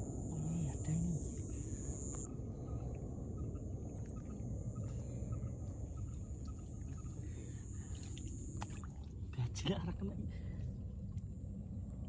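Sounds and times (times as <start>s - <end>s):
high-pitched insect trill: 0.0s - 8.8s
frogs croaking: 0.0s - 9.8s.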